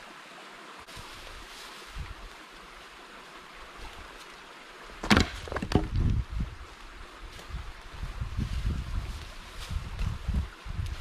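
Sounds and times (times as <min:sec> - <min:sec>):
footsteps on dry leaves: 0:00.9 - 0:02.4, 0:08.3 - 0:11.0.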